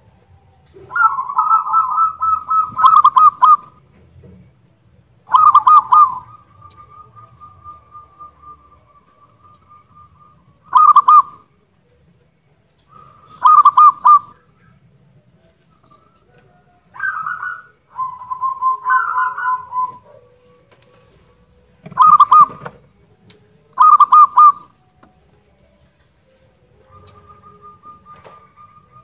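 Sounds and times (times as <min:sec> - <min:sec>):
dove cooing: 0:00.0 - 0:03.8, 0:05.3 - 0:11.5, 0:12.9 - 0:14.5, 0:15.8 - 0:22.9, 0:23.7 - 0:24.8, 0:26.8 - 0:29.0
dove trill: 0:00.0 - 0:04.3, 0:05.2 - 0:12.0, 0:12.7 - 0:29.0.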